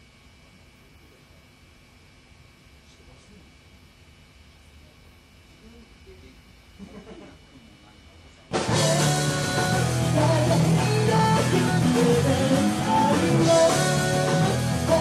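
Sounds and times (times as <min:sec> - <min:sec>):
rock band playing: 0:08.5 - 0:15.0.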